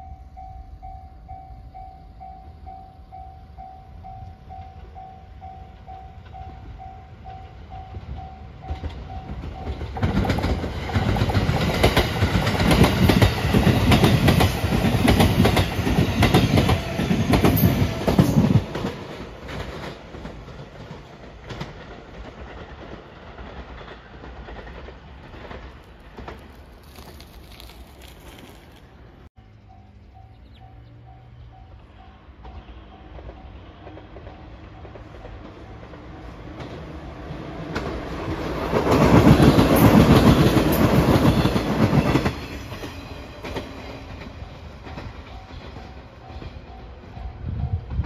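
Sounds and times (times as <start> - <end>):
train wheels clattering over rails: 8.1 - 26.6, 32.4 - 47.2.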